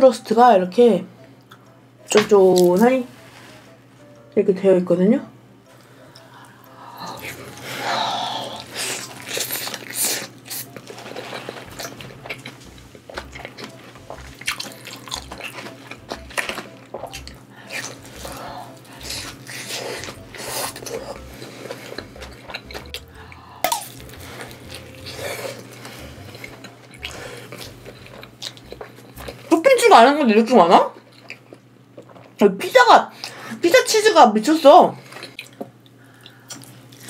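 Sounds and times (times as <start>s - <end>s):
person chewing pizza: 5.9s - 32.4s, 35.0s - 37.0s.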